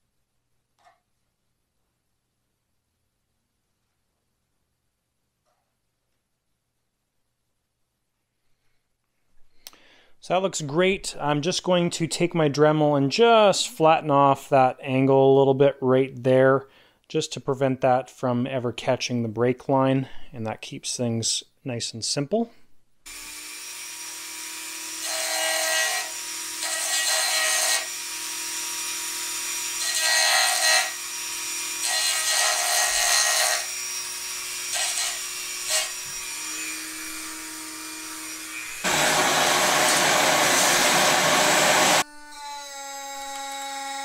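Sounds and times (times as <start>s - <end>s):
rotary tool grinding metal: 23.1s - 44.0s
small motor whine: 36.1s - 42.0s
loud hiss: 38.8s - 42.0s.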